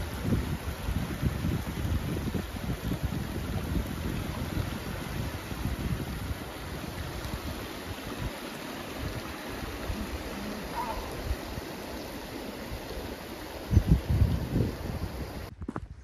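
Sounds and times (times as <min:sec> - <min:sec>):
wind buffeting microphone: 0:00.0 - 0:11.9, 0:12.7 - 0:16.0
stream rushing over rocks: 0:00.0 - 0:15.5.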